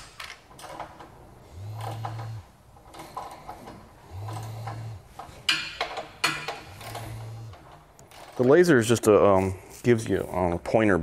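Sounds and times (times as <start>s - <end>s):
metal parts clicking and rattling: 0.0s - 9.1s
small electric motor humming: 1.4s - 2.6s, 6.6s - 7.7s.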